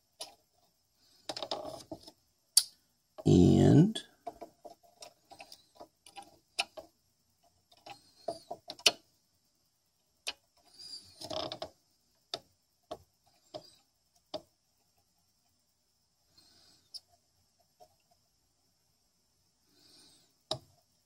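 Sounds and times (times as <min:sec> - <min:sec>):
small clicks and taps on metal: 0:04.2 - 0:09.0.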